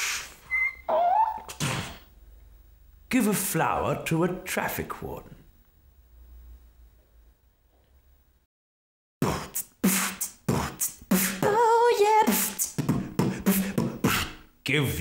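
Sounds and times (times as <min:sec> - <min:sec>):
beatboxing mouth percussion: 0:09.2 - 0:14.5.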